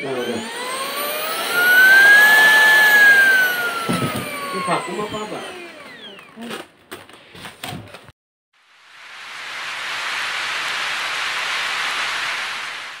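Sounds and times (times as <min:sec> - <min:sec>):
steady rain-like hiss: 0:08.6 - 0:13.0.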